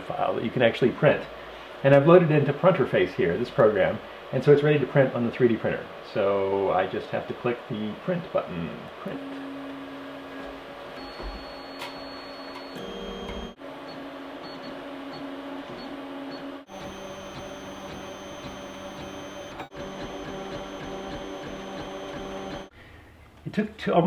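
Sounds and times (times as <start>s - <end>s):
stepper motors whirring: 16.6s - 22.7s.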